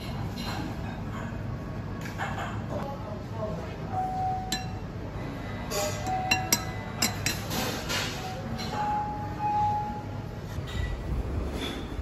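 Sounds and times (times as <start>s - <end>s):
utensils clinking on ceramic bowl: 4.5s - 4.8s, 5.7s - 8.8s.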